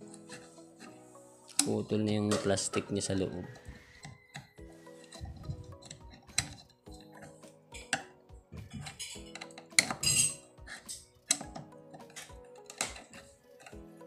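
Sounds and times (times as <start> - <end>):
soft background music: 0.0 - 14.0
screwdriver clinking on metal: 1.5 - 13.8
rattling metal scrape: 8.7 - 11.1.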